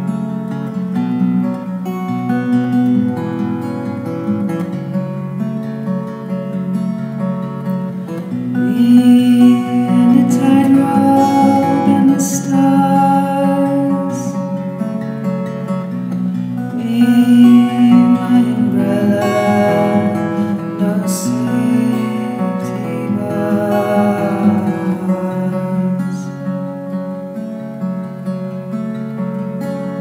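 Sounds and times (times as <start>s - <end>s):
plucked acoustic guitar music: 0.0s - 30.0s.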